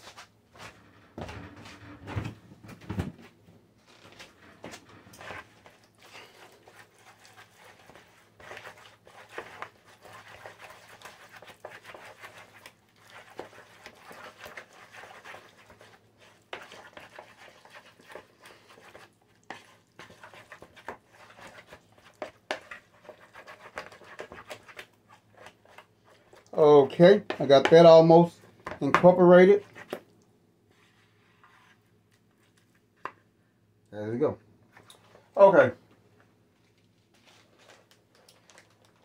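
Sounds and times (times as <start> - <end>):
wooden spoon stirring in bowl: 4.1 - 30.1.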